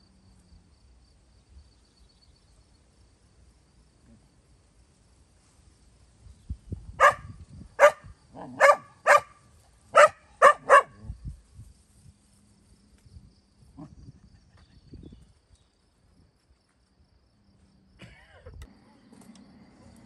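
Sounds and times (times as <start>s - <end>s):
dog barking: 7.0s - 11.0s.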